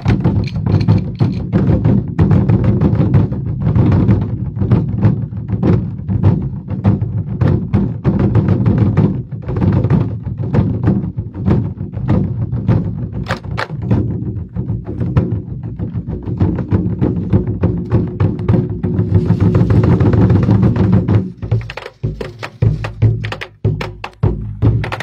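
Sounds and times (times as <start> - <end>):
drum ensemble playing: 0.0 - 2.0, 13.1 - 25.0.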